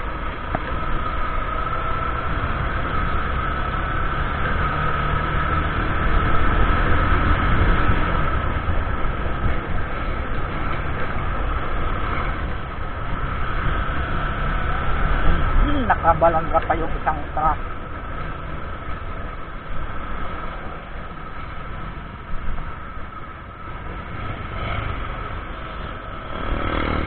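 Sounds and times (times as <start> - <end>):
road noise: 0.0 - 27.0
high whine: 8.0 - 26.2.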